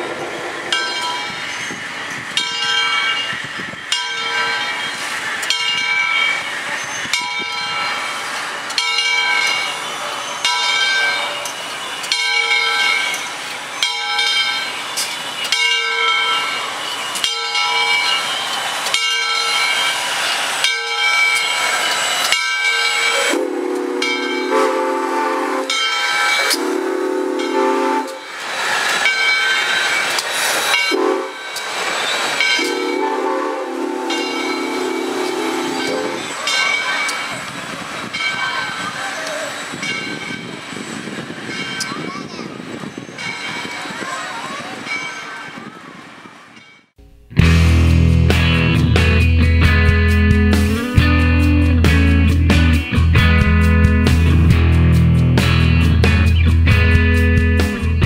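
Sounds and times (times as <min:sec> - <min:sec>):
steam locomotive bell ringing: 0:00.0 - 0:45.7, 0:47.8 - 0:58.0
steam locomotive passing slowly: 0:00.0 - 0:58.0
steam whistle long blasts: 0:22.7 - 0:28.3, 0:30.9 - 0:31.4, 0:32.6 - 0:36.3.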